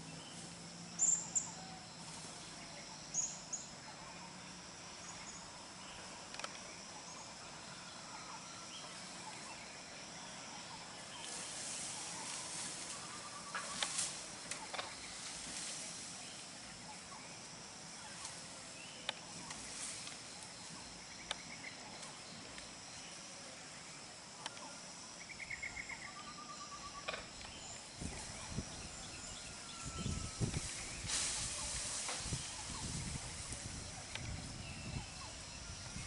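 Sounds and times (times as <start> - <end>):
background hiss: 0.0 - 36.0
rustling: 11.1 - 16.8, 28.1 - 34.3.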